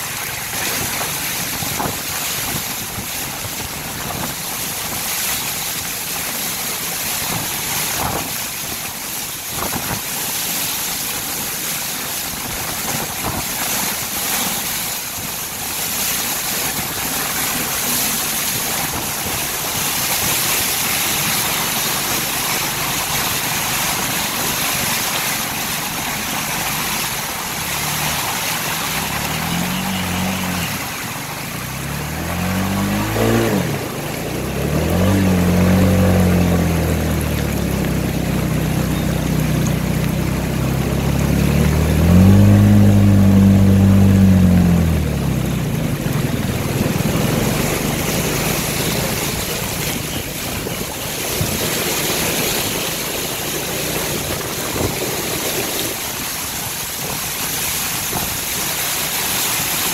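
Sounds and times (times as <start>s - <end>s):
rain and water spray: 0.0s - 59.9s
vehicle engine revving: 20.7s - 50.4s.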